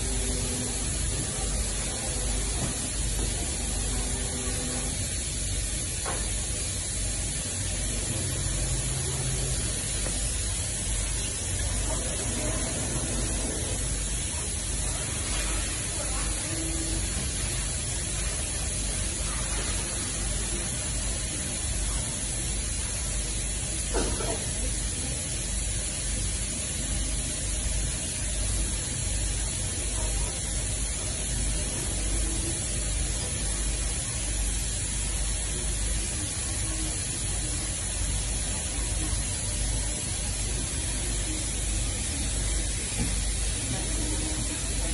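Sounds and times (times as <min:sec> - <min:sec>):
printing machine hiss and hum: 0:00.0 - 0:44.9.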